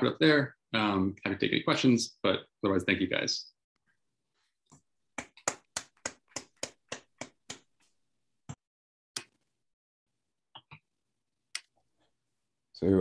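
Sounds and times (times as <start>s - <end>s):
hands clapping: 5.1s - 7.8s.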